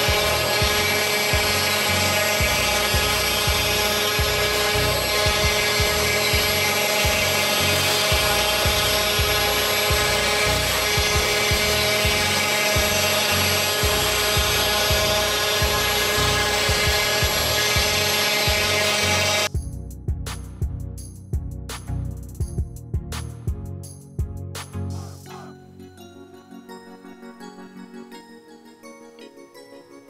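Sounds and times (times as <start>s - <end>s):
router spindle whine: 0.0s - 19.5s
vacuum cleaner sucking: 0.0s - 19.5s.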